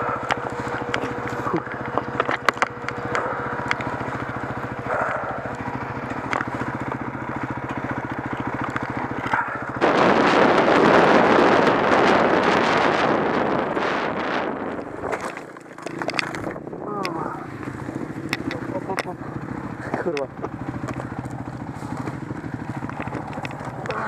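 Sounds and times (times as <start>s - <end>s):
dirt bike engine: 0.0s - 24.0s
wind on microphone: 9.6s - 17.2s
sharp clicks: 14.7s - 19.4s.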